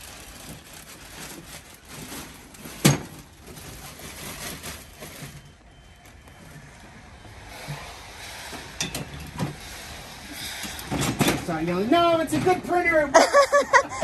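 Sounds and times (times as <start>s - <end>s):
plastic bag rustling: 0.0s - 7.6s.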